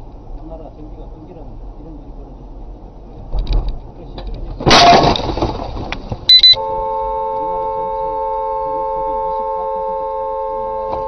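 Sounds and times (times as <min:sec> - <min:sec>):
short high beep: 0:06.3 - 0:06.7.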